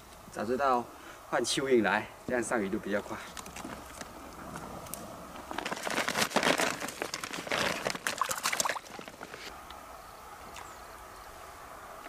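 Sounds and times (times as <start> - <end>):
footsteps on loose soil and stones: 3.3 - 9.5
net rustling: 5.4 - 9.5.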